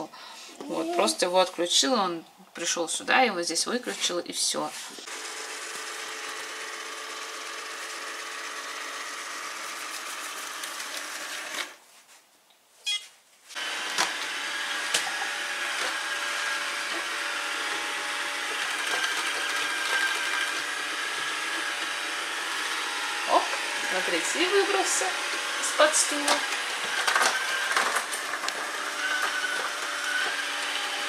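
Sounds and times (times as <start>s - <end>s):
robot vacuum cleaner motor whir: 5.0s - 11.8s, 13.6s - 31.0s.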